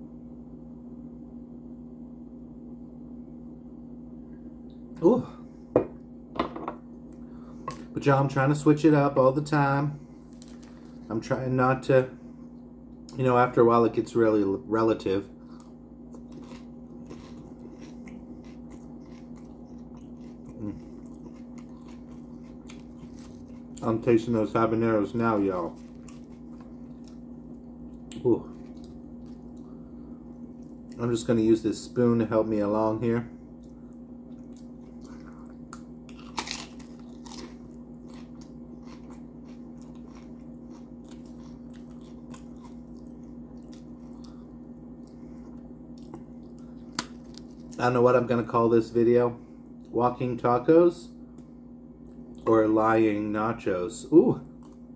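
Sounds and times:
chewing crunchy chips: 0:10.2 - 0:11.2, 0:15.4 - 0:31.2, 0:33.4 - 0:48.2.

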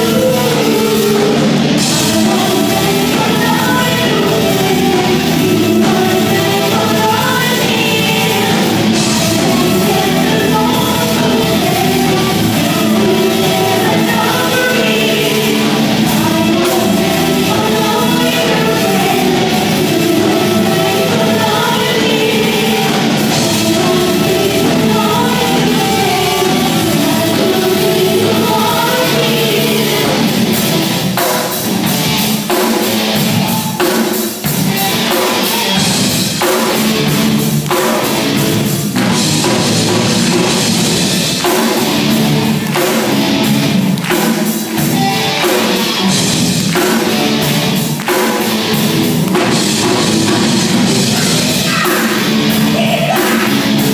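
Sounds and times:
woman singing: 0:00.0 - 0:30.5
drum kit beat: 0:00.0 - 0:53.9
electric guitar: 0:00.0 - 0:53.9
keyboard: 0:00.0 - 0:53.9.

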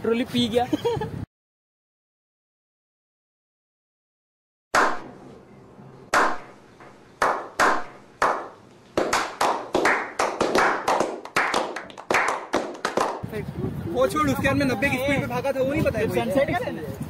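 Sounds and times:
single echoing hand claps: 0:06.1 - 0:06.6, 0:07.2 - 0:13.2
people clapping: 0:07.2 - 0:13.2.

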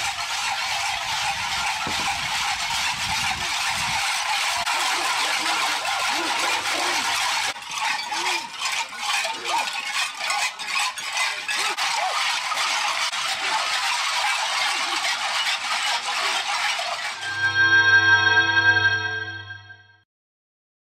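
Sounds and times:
cowbells clanking: 0:00.0 - 0:17.4
people shouting: 0:04.6 - 0:07.5.

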